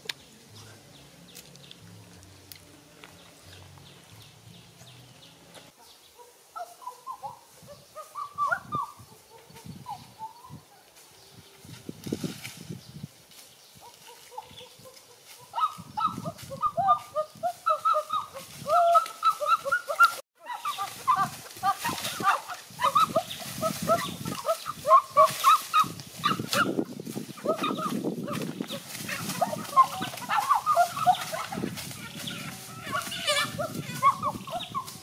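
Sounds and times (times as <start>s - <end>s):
chicken clucking: 13.8s - 35.0s.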